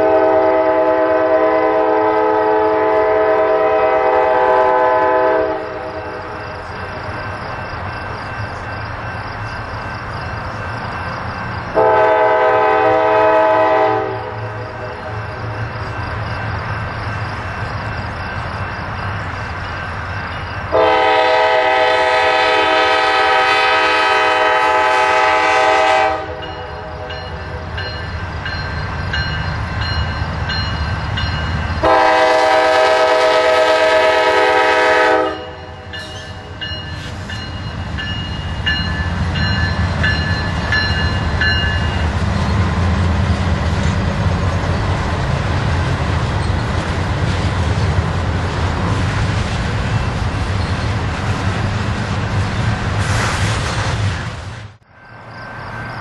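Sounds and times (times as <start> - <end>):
locomotive air horn blasts: 0.0 - 6.2, 11.7 - 15.1, 20.7 - 27.4, 31.8 - 36.3
train rumble: 0.0 - 56.0.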